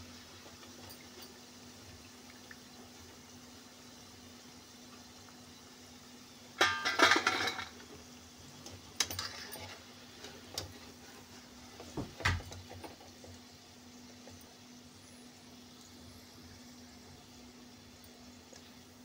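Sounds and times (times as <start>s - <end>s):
oil sizzling: 0.0s - 19.0s
wire skimmer clinking on pan: 6.6s - 7.9s, 9.0s - 9.8s.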